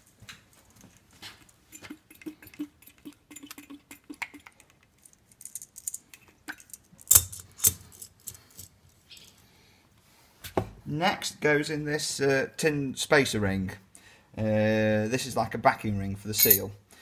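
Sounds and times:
metallic bearing rattles: 16.4 - 16.7.

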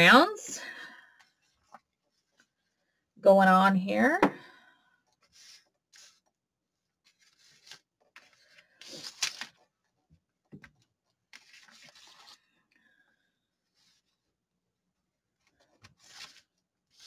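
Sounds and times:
paper rustling and rubbing: 5.2 - 9.7, 11.3 - 12.5, 15.6 - 17.0.

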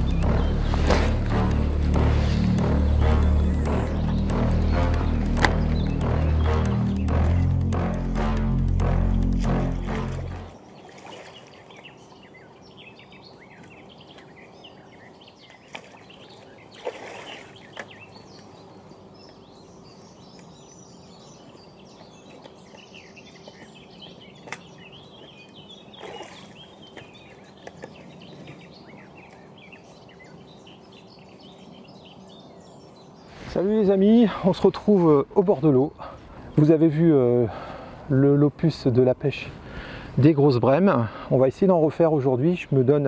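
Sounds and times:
small birds chirping and singing: 0.0 - 43.0
faint outdoor background noise: 8.8 - 43.0.

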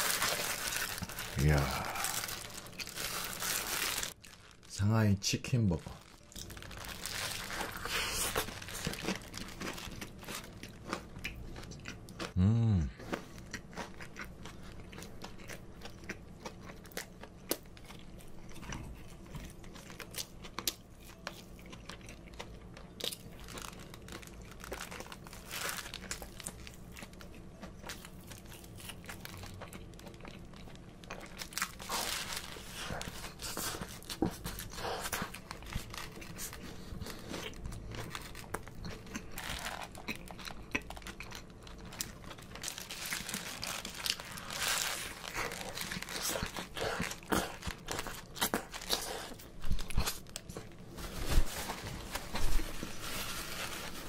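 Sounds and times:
foil wrapper crinkling: 0.0 - 10.6, 23.0 - 27.3, 27.9 - 54.0
chewing and crunching: 5.8 - 50.8.

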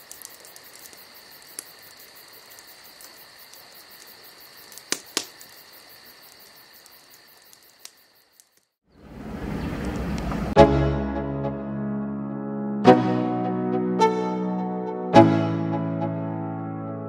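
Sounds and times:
sharp cracks: 0.0 - 8.8
crickets trilling: 0.0 - 9.2.

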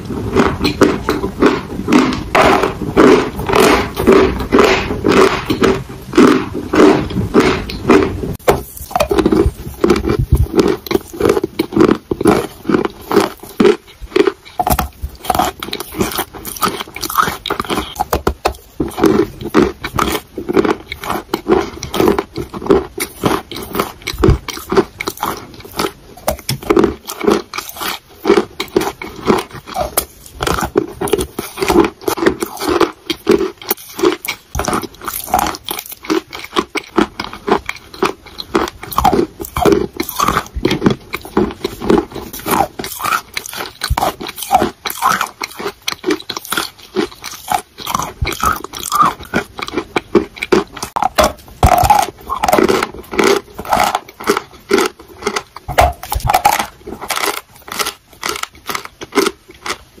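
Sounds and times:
chalk being chewed: 0.0 - 59.9.

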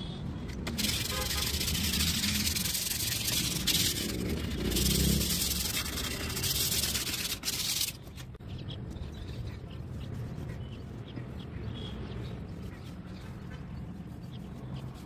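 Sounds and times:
sandpaper rubbing on wood: 0.7 - 8.2.

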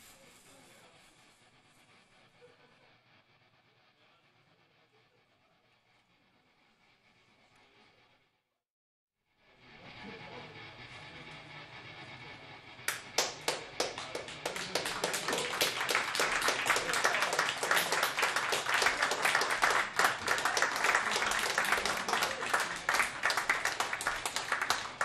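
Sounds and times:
audience clapping: 12.9 - 25.0.

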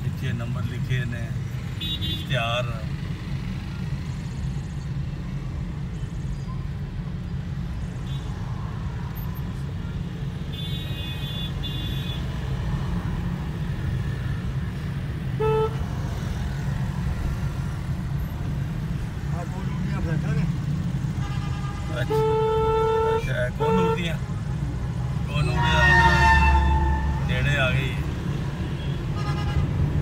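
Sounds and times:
car engine and road noise: 0.0 - 30.0
vehicle horn honking: 15.4 - 15.8, 21.2 - 24.2, 25.4 - 27.4, 28.8 - 29.7.

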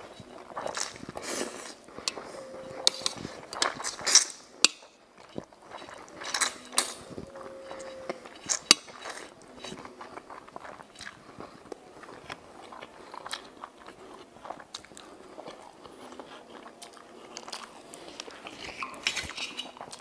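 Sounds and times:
mouth slurping noodles: 0.6 - 4.1.

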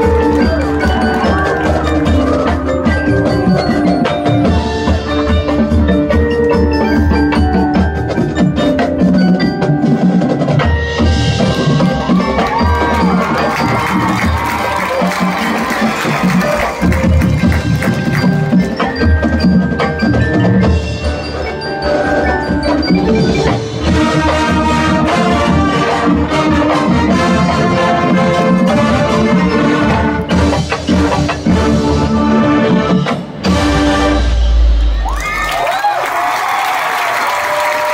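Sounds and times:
drum strikes: 0.0 - 35.4
marching band playing: 0.0 - 37.9
brass sustained chords: 31.6 - 34.9.

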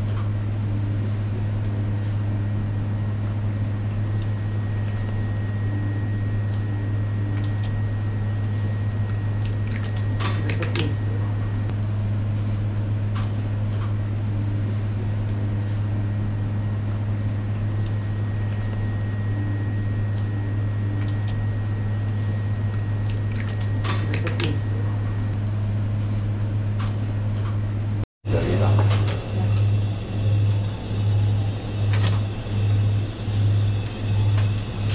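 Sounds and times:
kitchen machinery hum: 0.0 - 34.9.

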